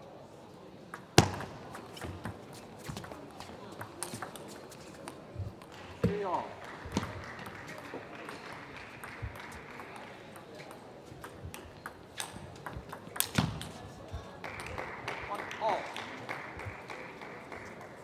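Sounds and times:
murmur of hall: 0.0s - 18.0s
table tennis ball clicking: 3.0s - 4.6s, 9.0s - 13.6s.

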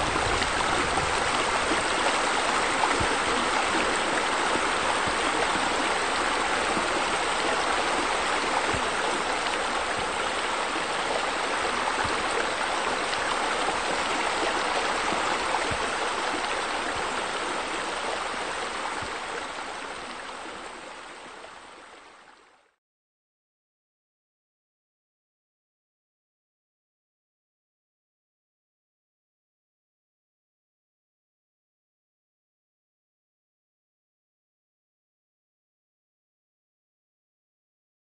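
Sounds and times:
water pouring into pool: 0.0s - 20.6s.

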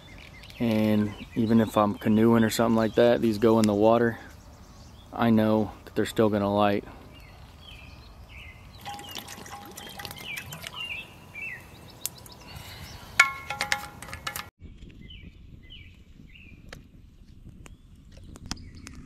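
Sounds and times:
birds chirping: 0.0s - 14.3s
water pouring into metal pot: 8.8s - 10.8s.

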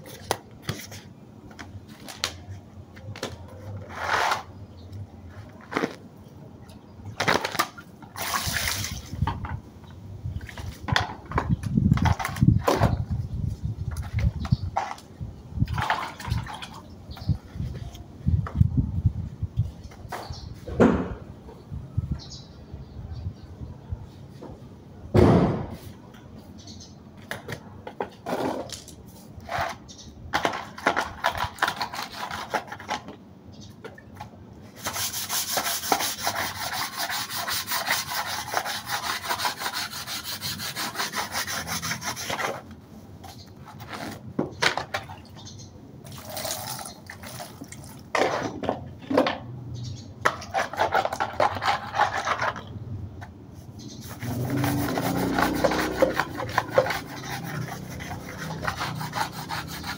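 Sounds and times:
sharp knock: 25.2s - 25.8s
sandpaper rubbing: 34.7s - 42.6s, 53.9s - 59.9s.

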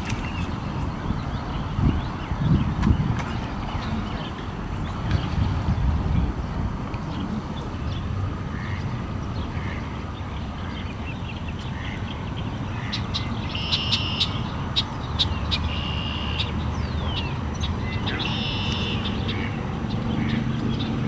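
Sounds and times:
mallard ducks quacking: 17.9s - 20.5s.

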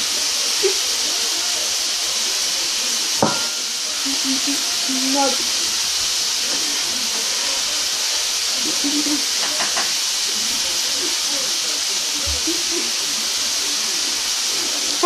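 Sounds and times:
high-pitched hiss: 0.0s - 15.0s.

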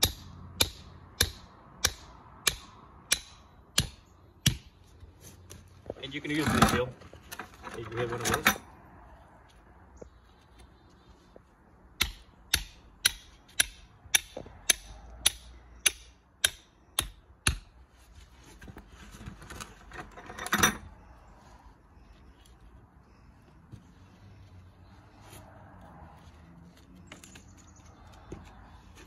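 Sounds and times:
mallet striking nails: 0.0s - 4.7s, 12.0s - 17.7s.

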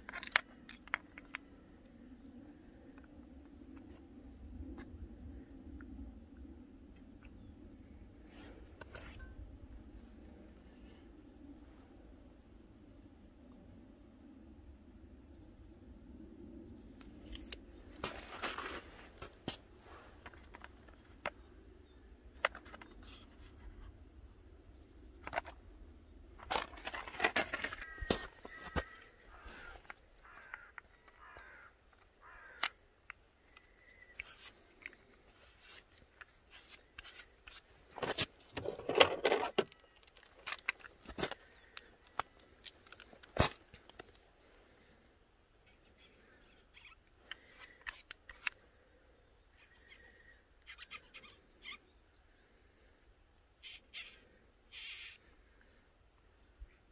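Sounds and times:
sharp clicks of parts handled: 0.0s - 4.1s, 22.3s - 23.6s, 25.2s - 25.6s, 29.7s - 44.3s, 45.7s - 48.6s
rubbing and scraping of parts: 0.0s - 4.2s, 22.3s - 24.0s, 25.2s - 25.7s, 26.3s - 44.2s, 45.6s - 48.6s.

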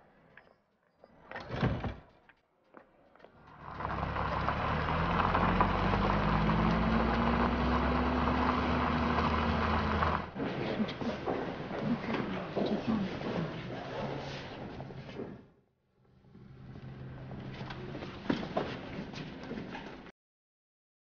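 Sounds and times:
vehicle engine running: 3.4s - 10.4s.

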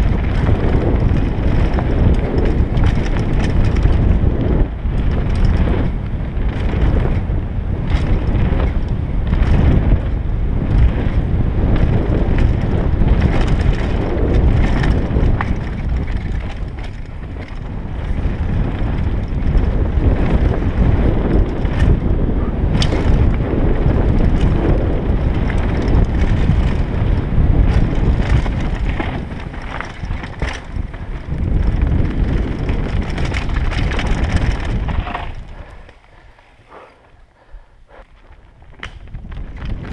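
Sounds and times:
bike rattling on bumps: 0.0s - 39.9s
tyres rumbling on dirt trail: 0.0s - 39.9s
wind buffeting microphone: 0.0s - 39.9s.

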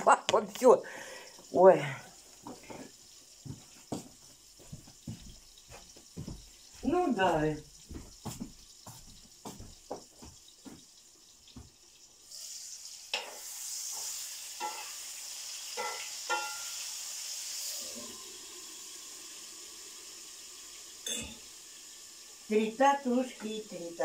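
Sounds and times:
steady hiss: 0.5s - 24.0s
kitchen knocks and clinks: 15.8s - 16.8s, 21.0s - 21.4s.

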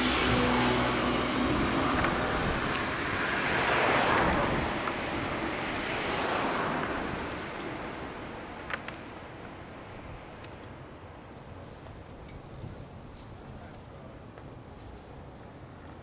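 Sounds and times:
vehicle passing with a whoosh: 0.0s - 8.8s.

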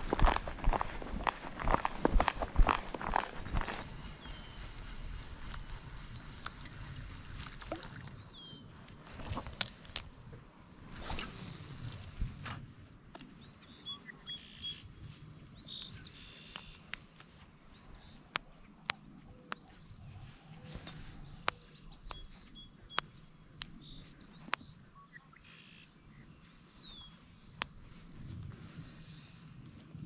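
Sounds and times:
low outdoor background: 0.0s - 30.0s
birds singing: 3.4s - 4.8s, 8.0s - 8.8s, 13.4s - 17.0s, 19.2s - 27.8s.

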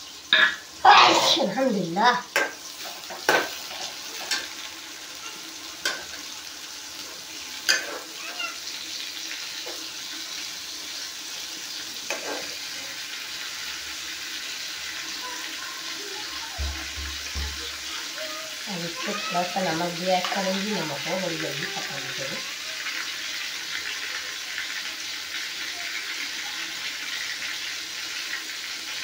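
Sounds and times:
vegetables sizzling in oil: 0.0s - 29.0s
ladle knocking on metal pan: 16.6s - 17.7s.

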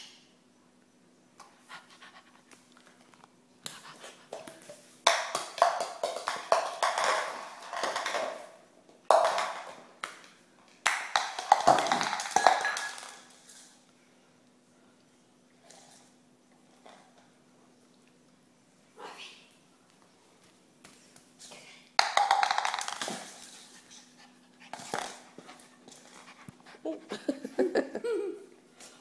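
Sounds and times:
cup clattering on tiled floor: 5.1s - 13.8s, 22.0s - 23.6s.

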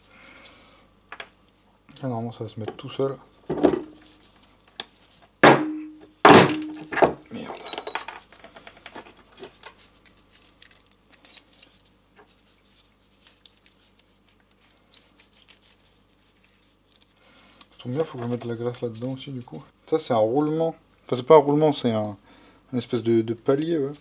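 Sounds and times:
small clicks of parts handled: 7.7s - 12.3s.

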